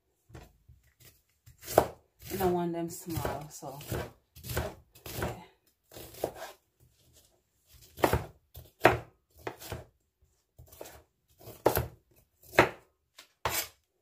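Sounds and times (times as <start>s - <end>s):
knife chopping on cutting board: 1.0s - 2.5s, 3.1s - 6.6s, 7.7s - 9.9s, 10.6s - 12.8s, 13.4s - 13.7s.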